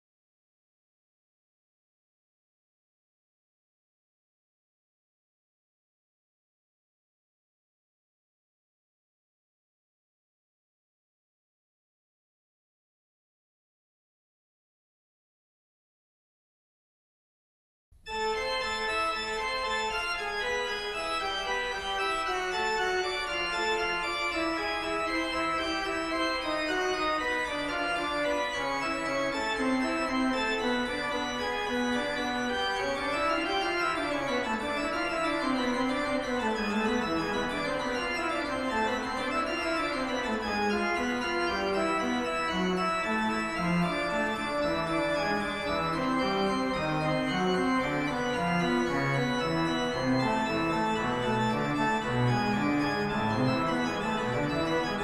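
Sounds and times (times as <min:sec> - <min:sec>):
organ playing slow chords: 0:18.1 - 0:55.0.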